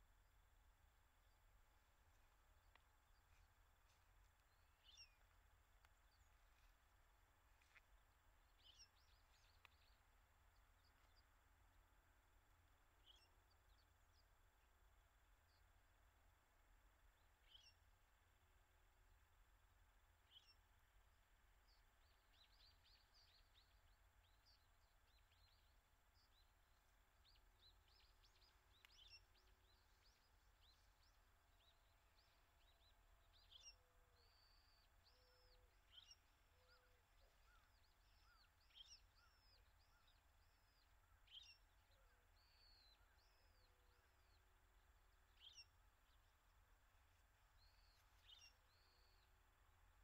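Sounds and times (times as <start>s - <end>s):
sparrows chirping: 27.2s - 44.4s.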